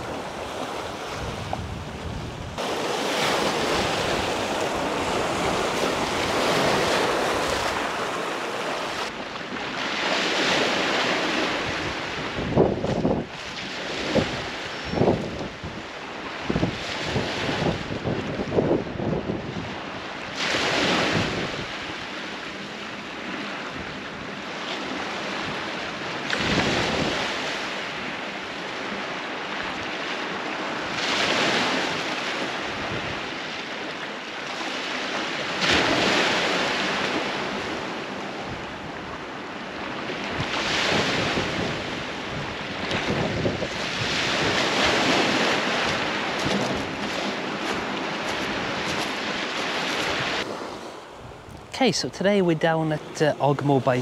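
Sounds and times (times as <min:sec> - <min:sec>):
waves breaking on pebble beach: 0:02.6 - 0:12.4, 0:40.0 - 0:54.0.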